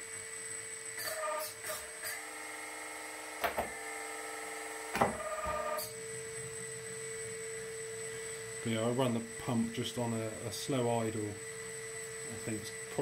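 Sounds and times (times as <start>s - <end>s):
hydraulic pump whine: 0.0s - 13.0s.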